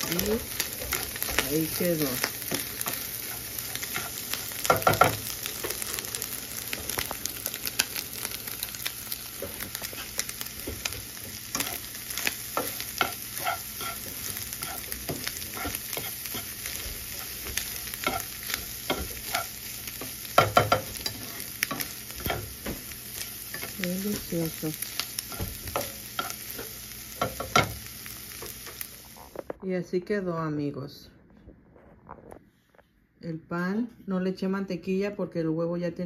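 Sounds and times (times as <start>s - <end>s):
spatula scraping pan: 0.0s - 7.0s, 7.6s - 27.7s
eggs sizzling in frying pan: 0.0s - 29.5s.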